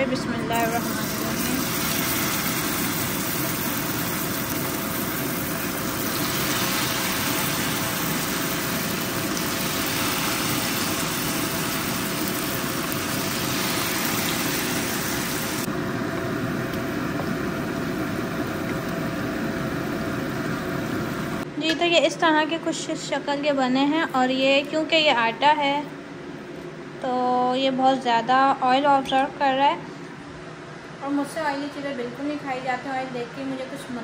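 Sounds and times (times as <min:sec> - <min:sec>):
deep-frying sizzle in oil: 0:00.6 - 0:15.7.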